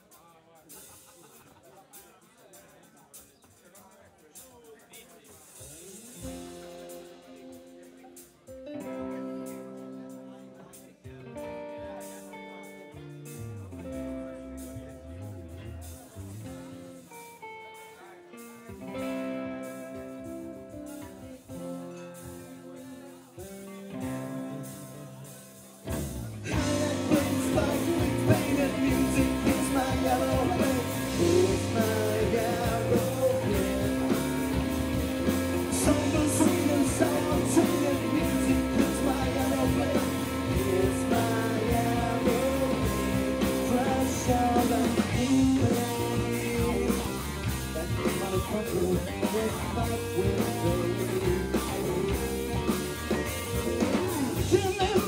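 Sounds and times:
rock band playing loudly: 0:00.0 - 0:02.1, 0:05.0 - 0:55.0
electric guitar playing: 0:06.0 - 0:55.0
man singing: 0:22.7 - 0:55.0.

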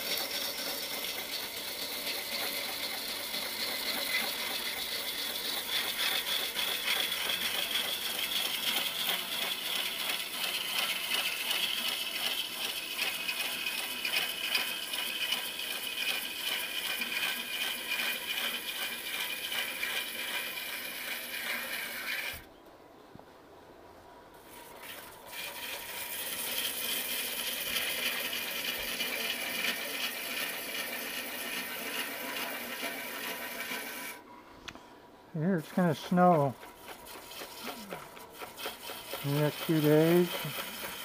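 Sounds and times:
gouge cutting wood on a lathe: 0:00.0 - 0:22.5, 0:24.4 - 0:34.2, 0:35.5 - 0:41.0.

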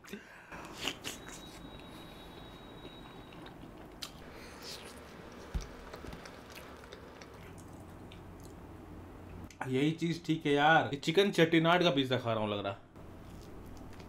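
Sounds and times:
chewing pizza: 0:02.8 - 0:08.6, 0:13.1 - 0:14.0.

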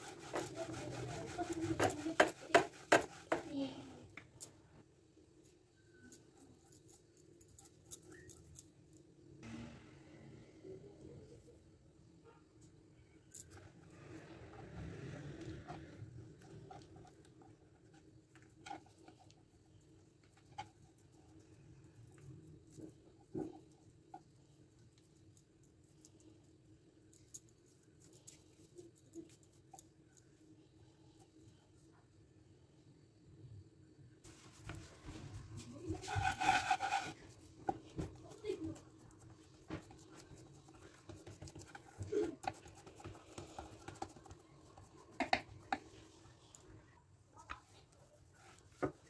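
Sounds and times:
fingers patting dough: 0:00.0 - 0:03.6, 0:36.0 - 0:45.9.

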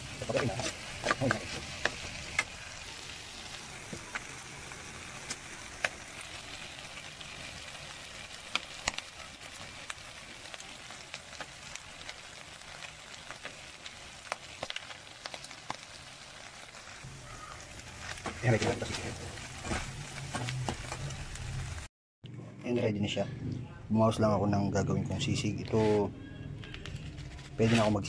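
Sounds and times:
meat sizzling in oil: 0:00.0 - 0:21.9
oil popping and crackling: 0:00.0 - 0:21.9.

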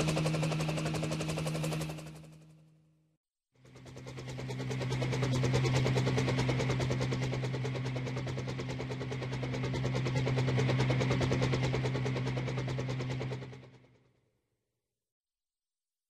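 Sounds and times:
toy helicopter rotor buzzing: 0:00.0 - 0:02.5, 0:03.6 - 0:13.8.

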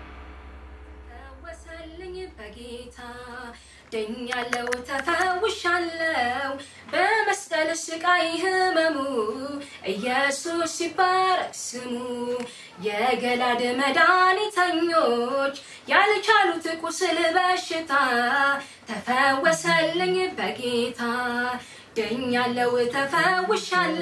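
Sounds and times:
low music drone: 0:00.0 - 0:03.5
woman singing unaccompanied: 0:01.2 - 0:24.0.

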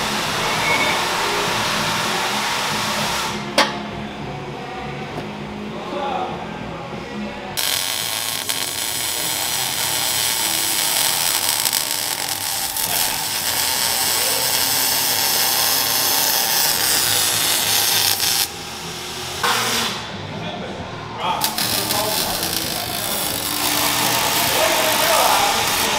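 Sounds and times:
welding arc crackling: 0:07.6 - 0:20.0, 0:21.4 - 0:25.9.

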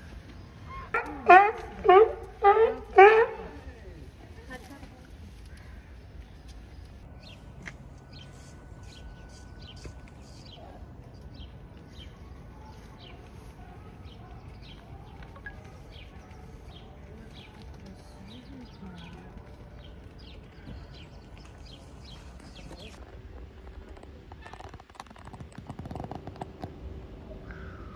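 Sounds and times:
small birds chirping: 0:05.3 - 0:23.0.

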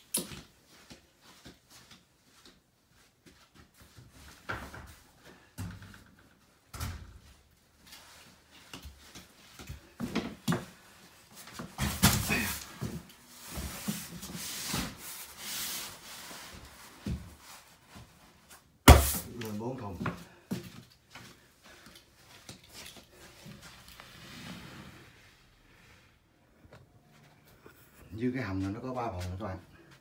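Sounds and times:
cardboard boxes knocking and thumping: 0:11.5 - 0:14.3, 0:18.8 - 0:19.3.

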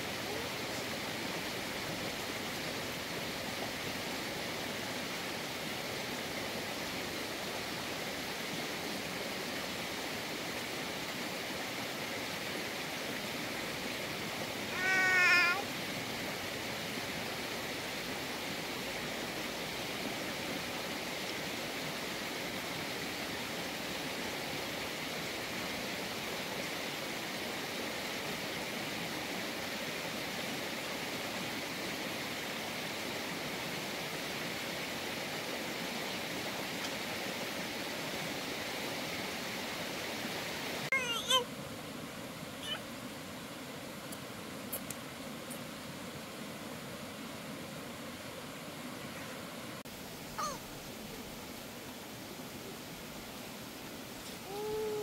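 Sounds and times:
steady hissing noise: 0:00.0 - 0:55.0
wavering pitched call: 0:14.7 - 0:15.6, 0:50.4 - 0:50.6.

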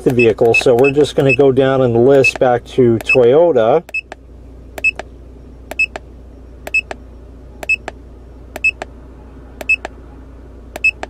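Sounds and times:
keypad button clicks: 0:00.0 - 0:01.4, 0:03.9 - 0:04.2, 0:04.8 - 0:05.1, 0:05.7 - 0:06.0, 0:06.7 - 0:07.0, 0:07.6 - 0:08.0, 0:08.6 - 0:08.9, 0:09.6 - 0:10.0, 0:10.8 - 0:11.0.

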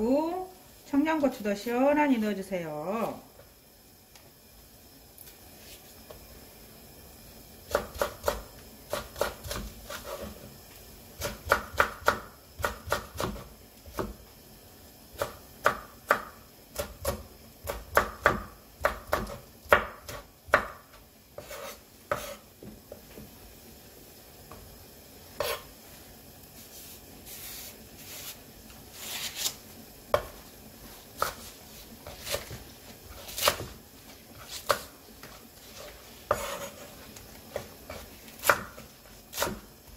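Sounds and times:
knife chopping on wooden board: 0:07.7 - 0:10.4, 0:11.2 - 0:14.2, 0:15.2 - 0:22.8, 0:25.4 - 0:25.6, 0:30.1 - 0:30.4, 0:31.2 - 0:33.8, 0:34.4 - 0:36.9, 0:37.5 - 0:39.7.

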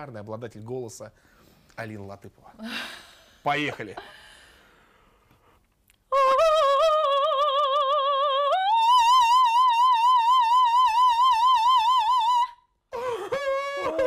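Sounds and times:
operatic soprano singing: 0:06.1 - 0:12.6.

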